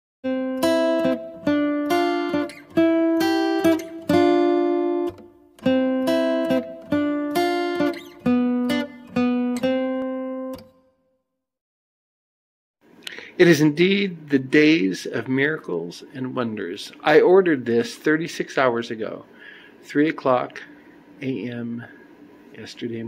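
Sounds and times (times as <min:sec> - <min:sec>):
plucked acoustic guitar melody: 0:00.2 - 0:10.8.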